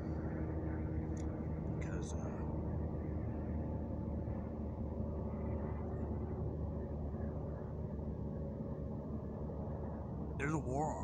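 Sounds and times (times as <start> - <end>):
faint hum: 0.0 - 11.0
low outdoor rumble: 0.0 - 11.0.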